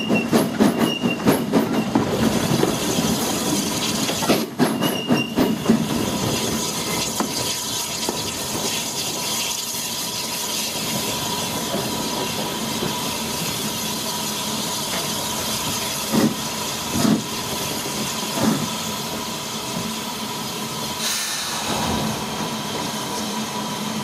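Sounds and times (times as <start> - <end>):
steam locomotive running: 0.0 - 24.0
steam hissing: 5.5 - 24.0.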